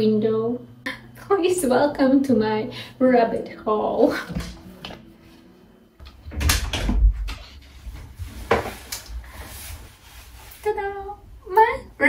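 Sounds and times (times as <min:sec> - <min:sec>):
door knocks and thuds: 0:06.2 - 0:07.4.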